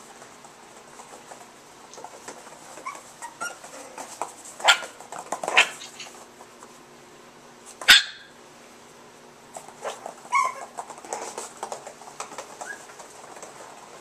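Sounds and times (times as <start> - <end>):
puppy whining: 2.7 - 4.0, 5.5 - 6.2, 9.8 - 10.9, 12.5 - 13.0
puppy yipping: 2.8 - 3.7, 7.8 - 8.3, 9.8 - 10.8, 12.6 - 13.0.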